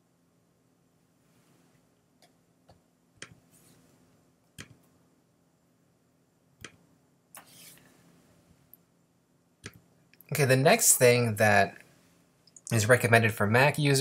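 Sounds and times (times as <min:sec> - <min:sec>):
computer mouse clicks: 0:04.6 - 0:04.9, 0:06.6 - 0:06.8, 0:09.6 - 0:09.8.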